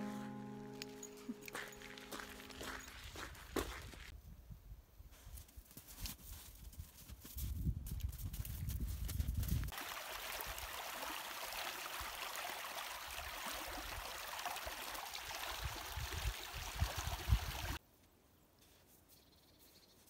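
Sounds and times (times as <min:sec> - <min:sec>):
stream rushing and splashing: 0:09.7 - 0:17.8.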